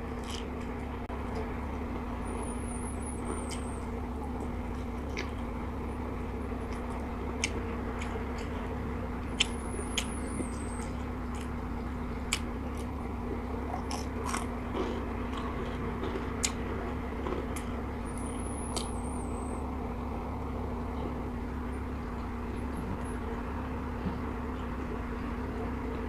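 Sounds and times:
steady low hum: 0.0s - 26.0s
person chewing food: 0.1s - 0.7s, 10.8s - 11.6s, 13.7s - 16.6s.

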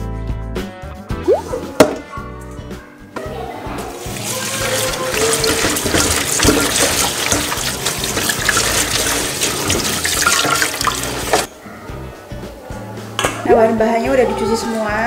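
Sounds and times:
tap water splashing into sink: 4.4s - 11.5s.

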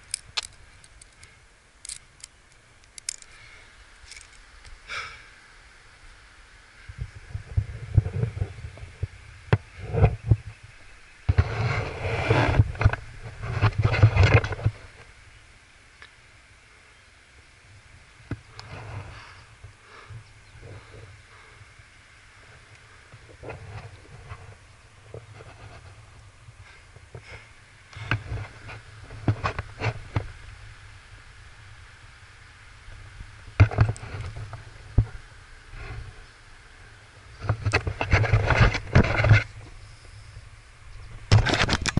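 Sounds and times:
rustling: 0.0s - 4.8s, 11.2s - 15.2s, 22.3s - 30.9s
wind rumbling on microphone: 0.0s - 15.5s, 16.3s - 41.9s
wind buffeting microphone: 6.8s - 15.0s
sharp knocks and scrapes: 11.3s - 14.8s, 37.4s - 39.6s.

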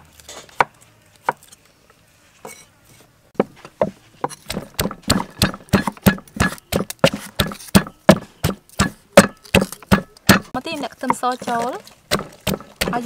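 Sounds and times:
pestle pounding in a mortar: 4.2s - 10.5s, 11.1s - 13.0s.

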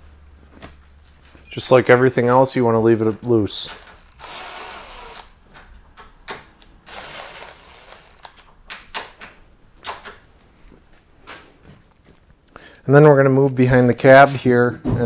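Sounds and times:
cordless drill whining: 3.7s - 5.3s, 6.9s - 8.3s.

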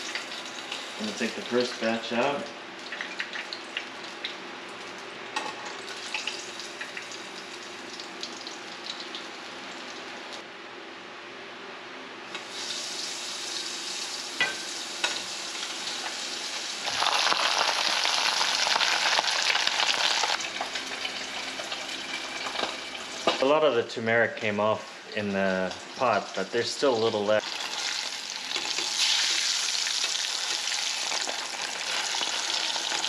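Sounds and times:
fish frying in a pan: 12.4s - 23.3s, 27.4s - 33.0s.

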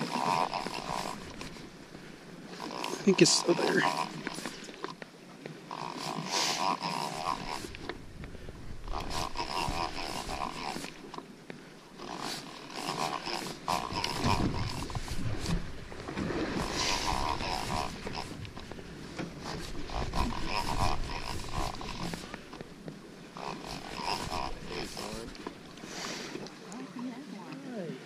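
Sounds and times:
fishing reel gears whirring: 0.0s - 1.6s, 2.4s - 5.0s, 5.7s - 8.0s, 8.8s - 11.2s, 11.9s - 15.7s, 16.5s - 18.8s, 19.4s - 22.6s, 23.3s - 25.8s.

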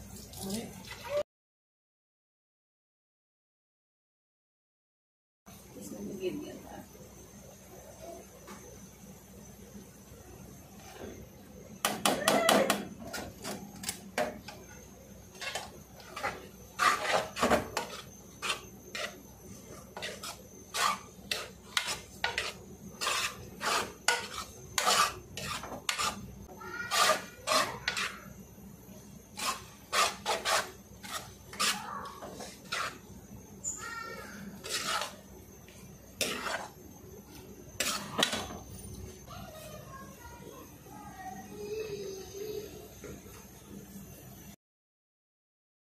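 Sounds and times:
metal spatula scraping a wok: 15.3s - 28.3s, 29.3s - 33.1s, 34.3s - 35.2s, 36.2s - 36.8s, 37.8s - 38.6s.

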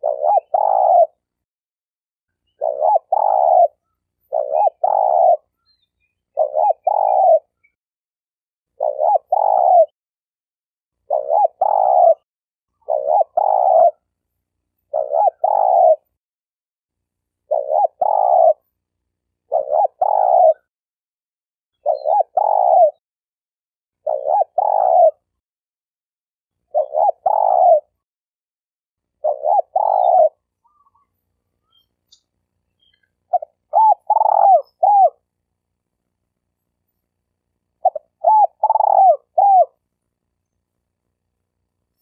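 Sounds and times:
dove cooing: 0.0s - 1.2s, 2.6s - 5.5s, 6.3s - 7.5s, 8.8s - 10.0s, 11.1s - 12.2s, 12.8s - 14.0s, 14.9s - 16.1s, 17.5s - 18.6s, 19.5s - 20.7s, 21.8s - 23.0s, 24.0s - 25.3s, 26.7s - 28.0s, 29.2s - 31.1s, 32.8s - 35.2s, 37.8s - 39.8s.

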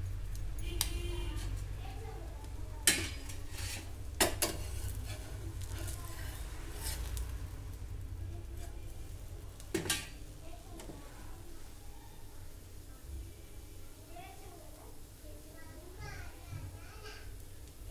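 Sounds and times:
metal spatula scraping a griddle: 0.8s - 2.0s, 2.8s - 7.5s, 8.5s - 9.1s.

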